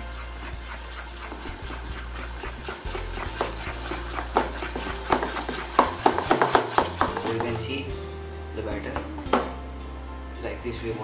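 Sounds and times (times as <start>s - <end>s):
spoon stirring batter in bowl: 0.0s - 7.7s.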